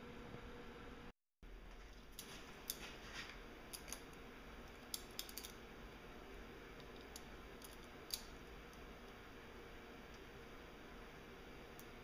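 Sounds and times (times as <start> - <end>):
hex key metal clicks: 6.8 - 8.8.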